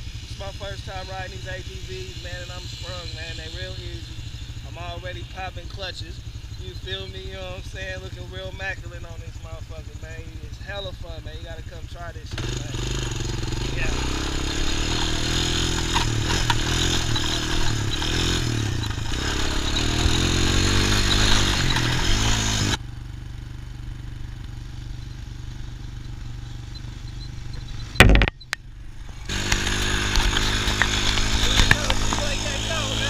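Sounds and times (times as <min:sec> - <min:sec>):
atv engine running: 0:00.0 - 0:33.0
loud knock: 0:28.0 - 0:28.4.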